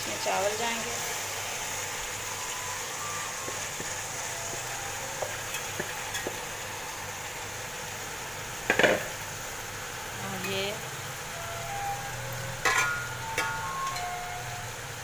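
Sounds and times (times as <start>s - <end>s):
food sizzling in a pot: 0.0s - 15.0s.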